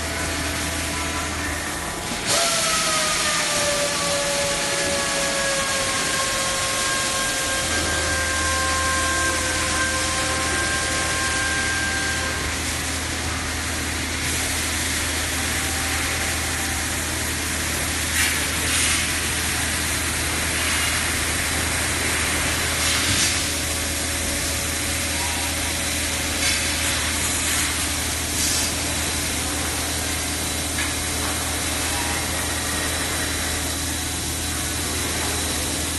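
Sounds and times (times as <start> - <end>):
machine hiss: 1.8 - 35.9
loud hissing bursts: 13.6 - 30.7.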